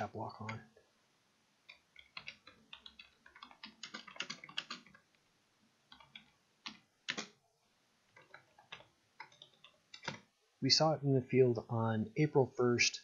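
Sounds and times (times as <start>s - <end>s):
computer keyboard typing: 1.7s - 5.1s, 5.9s - 7.4s, 8.1s - 10.3s.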